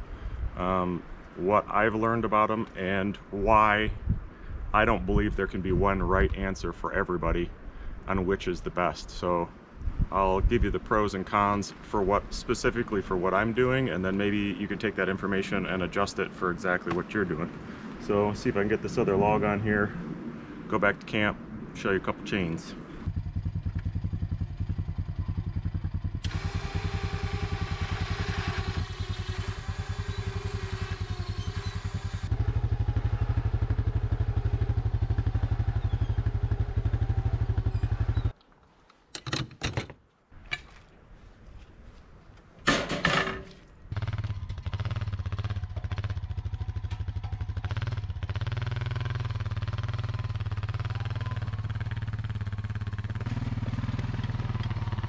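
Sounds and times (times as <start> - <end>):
quad bike engine running: 23.1 - 38.3, 43.9 - 55.0.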